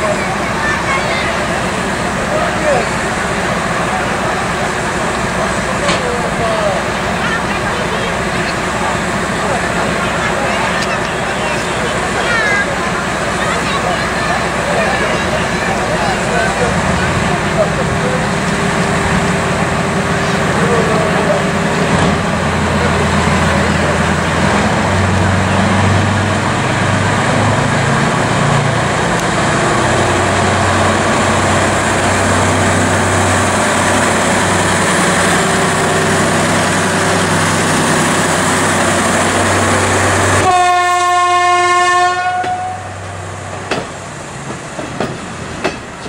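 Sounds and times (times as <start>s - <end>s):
diesel locomotive running: 0.0s - 46.0s
locomotive horn blast: 40.3s - 43.0s
wheels clicking over rail joints: 43.5s - 46.0s.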